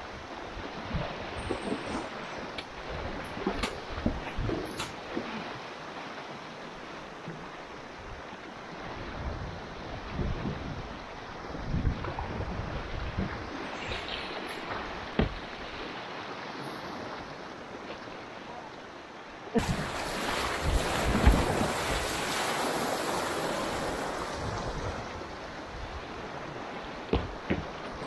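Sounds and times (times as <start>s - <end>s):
river water rushing and splashing: 0.0s - 28.0s
sharp knocks: 15.2s - 15.4s, 27.1s - 27.7s.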